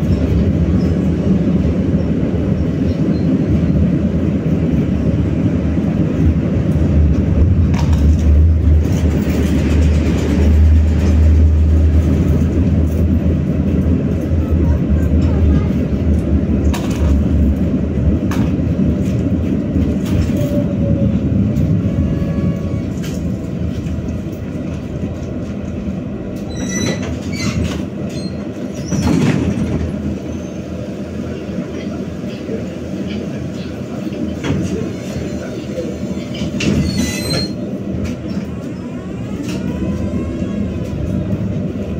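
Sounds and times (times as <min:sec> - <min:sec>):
tram motor hum: 0:00.0 - 0:41.9
tram rolling on rails: 0:00.0 - 0:41.9.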